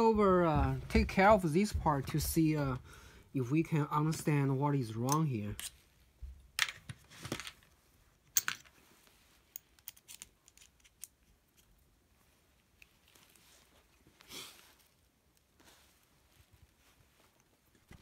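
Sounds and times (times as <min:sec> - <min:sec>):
screwdriver clicks and scrapes: 0:05.1 - 0:05.8
hands handling metal: 0:09.4 - 0:11.8.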